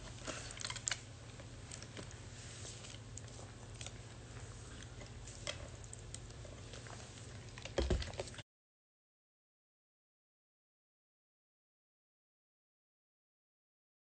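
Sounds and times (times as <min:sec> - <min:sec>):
low steady hum: 0:00.0 - 0:08.4.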